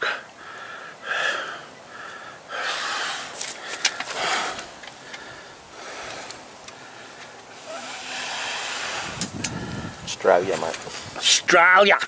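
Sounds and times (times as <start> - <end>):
man breathing heavily: 0.0 - 10.2.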